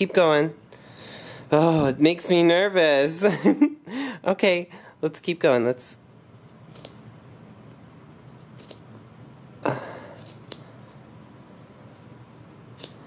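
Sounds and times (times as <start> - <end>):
scissors snipping fabric: 8.4 - 8.8, 10.2 - 10.7, 12.7 - 13.0.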